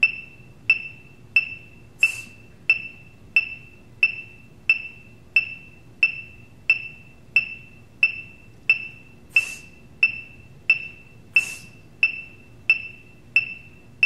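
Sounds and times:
brief hissing: 2.0 - 2.4, 9.3 - 9.7, 11.4 - 11.7.

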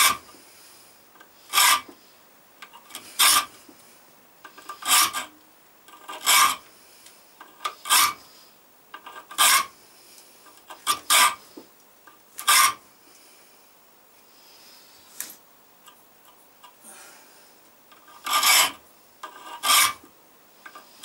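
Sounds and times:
file rasping on steel: 0.0 - 0.2, 1.5 - 1.9, 2.9 - 3.5, 4.6 - 5.3, 5.9 - 6.6, 7.6 - 8.2, 9.1 - 9.7, 10.7 - 11.4, 12.4 - 12.8, 18.0 - 20.0
light file scrapes: 1.4 - 1.9, 2.9 - 3.6, 4.5 - 5.3, 5.9 - 6.6, 7.6 - 8.3, 9.1 - 9.8, 10.6 - 11.6, 12.4 - 12.8, 18.0 - 20.0.

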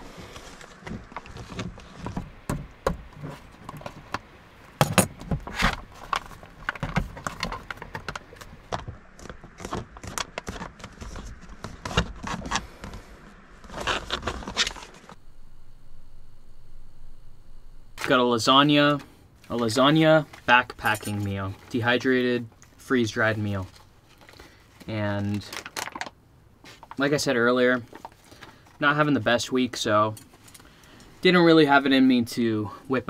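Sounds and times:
foil pouch crinkling: 22.5 - 27.0.

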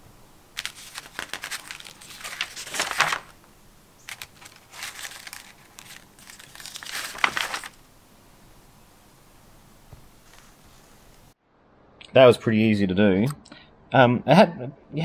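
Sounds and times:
paper crinkling: 0.6 - 7.8.

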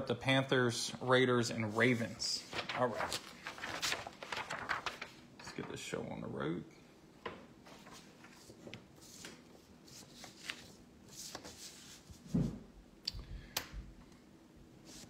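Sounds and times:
packaging rustling: 2.6 - 5.2.

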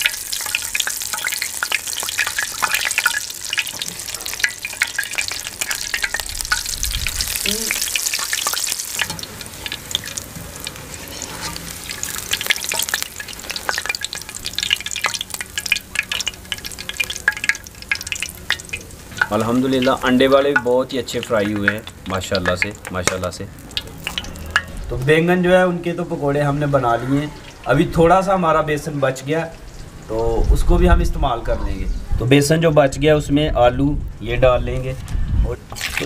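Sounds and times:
wire skimmer clinking on pan: 0.0 - 24.8
food deep-frying in oil: 0.0 - 31.4, 35.7 - 36.0.

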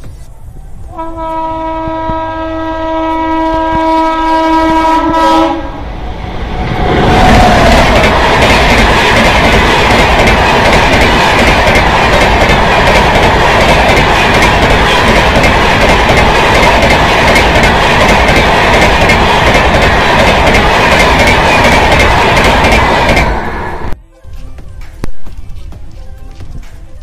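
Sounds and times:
locomotive horn blast: 0.9 - 5.8
train wheels on rails clattering: 7.1 - 23.5.

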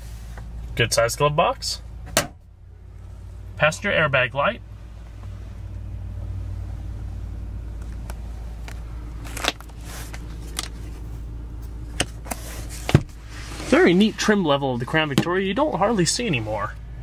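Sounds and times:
car cabin hum: 0.0 - 17.0
sun visor clicks and knocks: 2.0 - 2.4.

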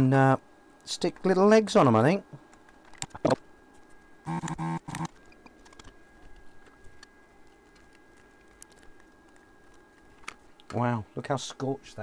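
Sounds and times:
faint high whine: 3.1 - 12.0
short steady hum: 4.1 - 5.4.

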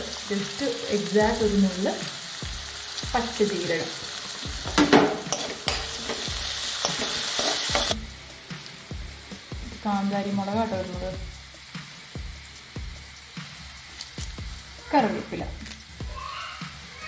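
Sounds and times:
onions sizzling in oil: 0.0 - 17.0
spoon scraping a pan: 4.7 - 8.0.

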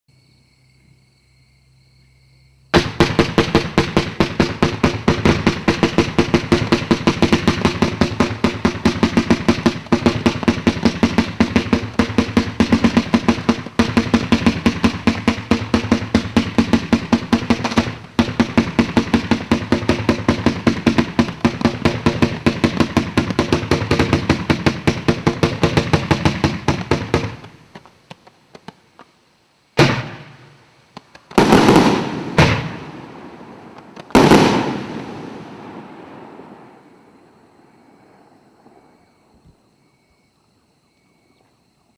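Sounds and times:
firework cake firing rapid shots: 2.7 - 28.8, 29.8 - 36.9
loud single firework bangs: 2.7 - 28.8, 29.8 - 39.0.

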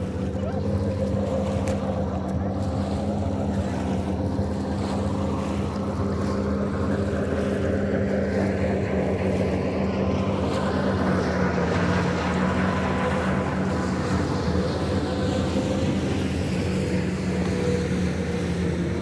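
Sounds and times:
motorboat engine hum: 0.0 - 19.0
water rushing: 0.0 - 19.0.

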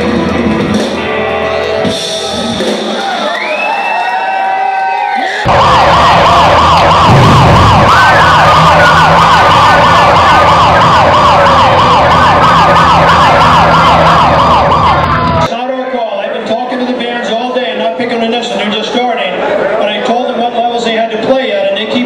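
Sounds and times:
siren wail: 3.3 - 15.5
siren yelping: 5.4 - 15.5.

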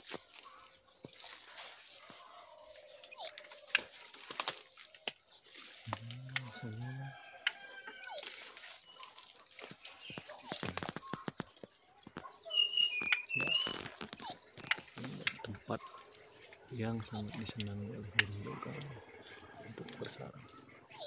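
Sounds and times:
rustling through undergrowth: 0.0 - 6.4, 8.0 - 15.4
high bird chirps: 3.0 - 3.8, 6.4 - 9.1, 9.9 - 21.0.

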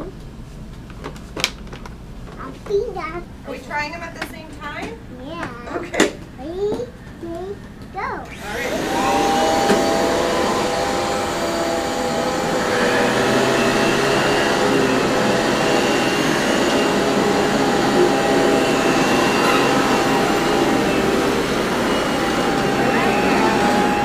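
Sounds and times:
vacuum cleaners whining: 5.7 - 24.0.

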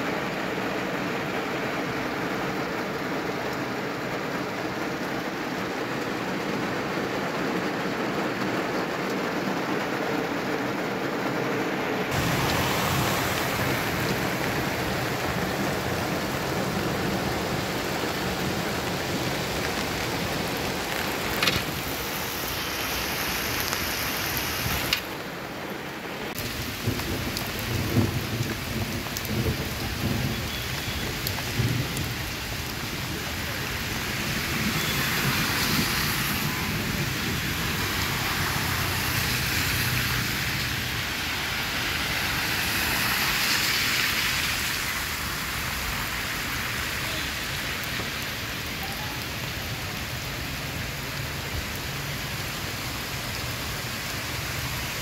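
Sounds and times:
heavy rain pouring: 0.0 - 55.0
rain drop clicks: 12.1 - 16.3, 18.8 - 22.2, 23.1 - 25.3, 26.3 - 33.8.

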